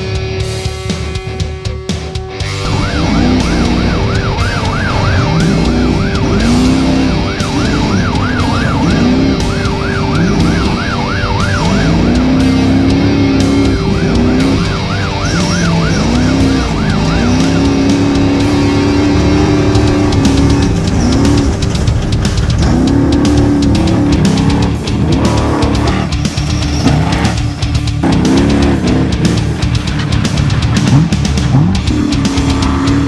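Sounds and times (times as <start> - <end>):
race car engine revving: 0.0 - 33.0
yelp siren sweeps: 2.4 - 21.7.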